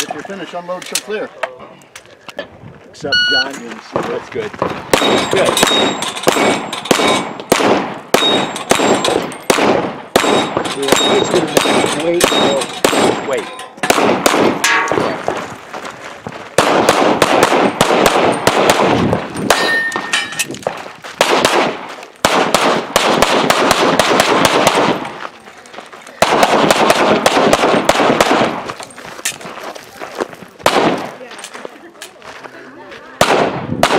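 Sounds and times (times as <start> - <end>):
pistol shots: 4.6 - 15.2, 16.6 - 20.1, 21.2 - 25.1, 26.2 - 28.7, 30.6 - 31.2, 33.2 - 33.9
steel targets clanging: 19.4 - 20.5.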